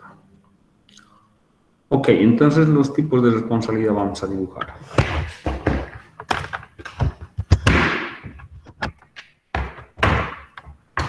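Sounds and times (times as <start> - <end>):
irregular taps and knocks: 4.6 - 11.0.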